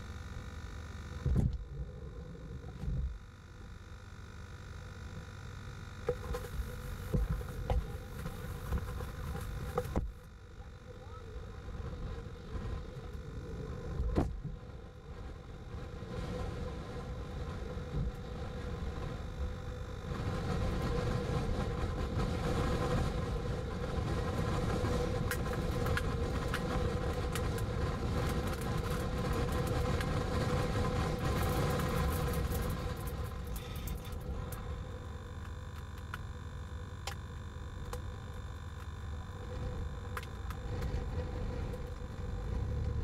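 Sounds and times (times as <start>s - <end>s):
steady low hum: 0.0s - 43.0s
storm wind on microphone: 13.6s - 33.5s.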